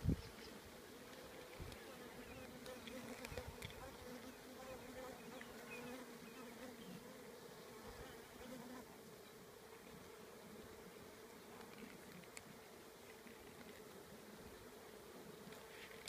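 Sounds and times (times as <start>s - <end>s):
honeybee colony humming: 0.0s - 16.0s
faint clicks: 11.6s - 13.9s.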